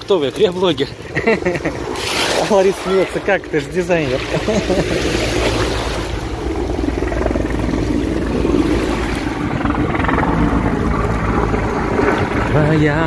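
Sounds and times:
helicopter drone overhead: 0:00.0 - 0:13.0
wind buffeting microphone: 0:00.0 - 0:13.0
waves washing onto pebble beach: 0:01.9 - 0:03.3.

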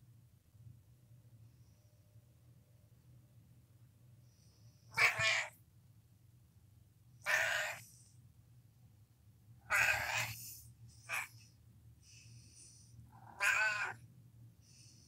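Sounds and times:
cat meowing: 0:05.0 - 0:05.6, 0:07.2 - 0:07.8, 0:09.7 - 0:10.4, 0:11.1 - 0:11.3, 0:13.2 - 0:14.0.

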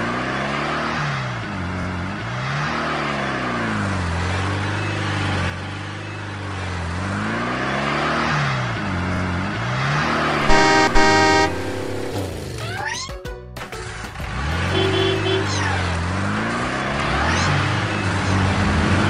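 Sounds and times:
car horn toot: 0:10.4 - 0:12.3, 0:14.7 - 0:15.5.

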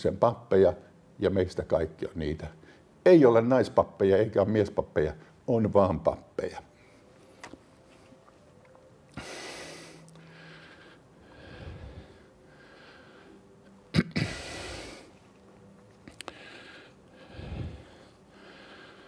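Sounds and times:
man breathing close to microphone: 0:09.1 - 0:13.6, 0:14.2 - 0:15.2, 0:16.2 - 0:19.0.

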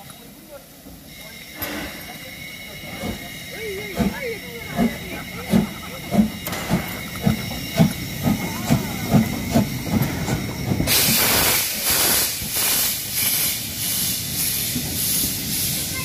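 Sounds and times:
steam hissing from drain cocks: 0:00.0 - 0:16.0
steam locomotive exhaust chuffs: 0:00.0 - 0:16.0.

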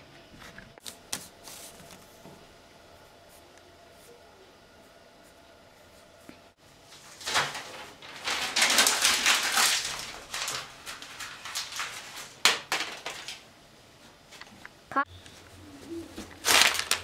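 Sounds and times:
paper crumpling: 0:06.9 - 0:13.4, 0:16.2 - 0:17.0.

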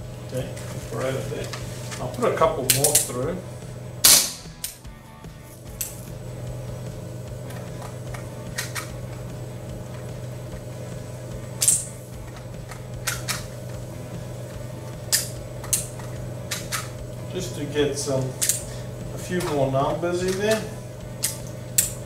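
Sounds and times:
steady low hum: 0:00.0 - 0:22.0
shells clicking into cylinder: 0:18.4 - 0:18.6.

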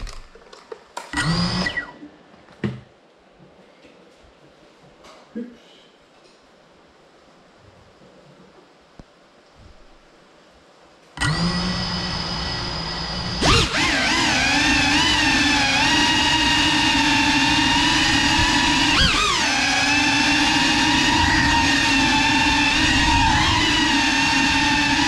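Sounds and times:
drone motors whining: 0:01.1 - 0:02.0, 0:11.2 - 0:25.0.

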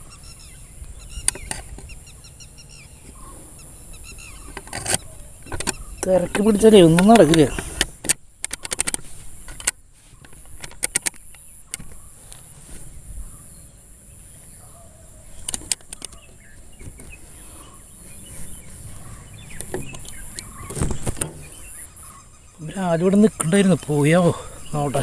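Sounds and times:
clicks and rubs of handling: 0:04.4 - 0:12.9, 0:15.3 - 0:22.2.

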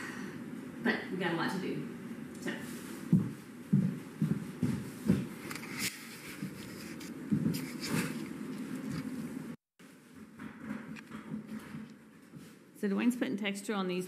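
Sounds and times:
footsteps on bare floor: 0:02.6 - 0:12.8.

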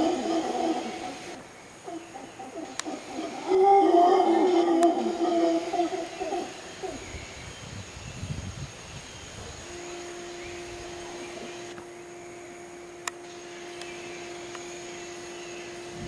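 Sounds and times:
howler monkeys roaring: 0:00.0 - 0:07.1
steady low hum: 0:00.0 - 0:16.0
thin high tone: 0:09.7 - 0:16.0.

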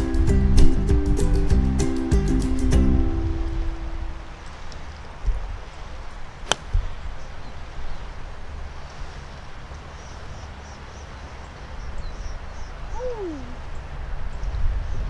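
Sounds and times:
golf club striking ball: 0:06.4 - 0:07.0.

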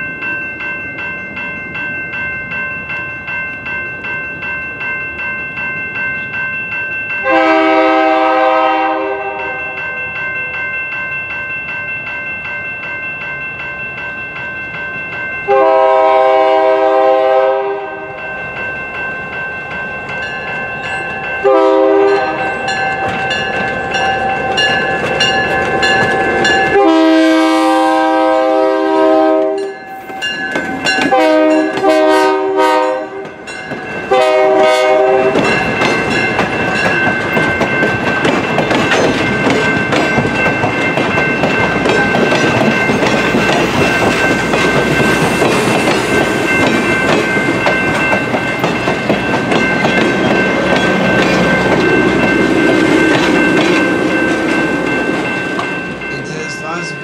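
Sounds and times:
train horn blasts: 0:07.2 - 0:09.7, 0:15.5 - 0:18.2, 0:21.4 - 0:22.5, 0:26.7 - 0:29.8, 0:31.1 - 0:33.3, 0:34.1 - 0:35.4
thin high ringing tone: 0:18.1 - 0:27.1
train wheels clacking on rails: 0:20.0 - 0:26.9, 0:29.3 - 0:57.0.

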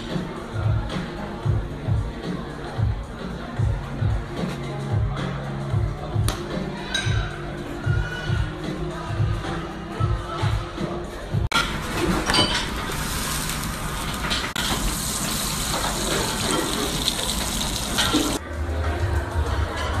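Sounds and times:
background music: 0:00.0 - 0:20.0
meat sizzling in a pan: 0:12.7 - 0:18.4.

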